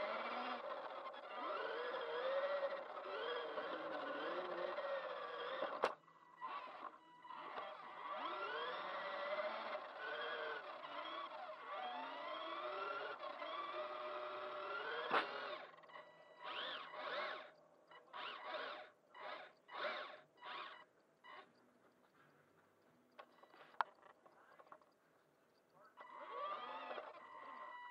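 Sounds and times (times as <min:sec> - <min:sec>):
toy car motor whine: 0:00.0 - 0:22.2, 0:23.1 - 0:25.0, 0:25.7 - 0:27.9.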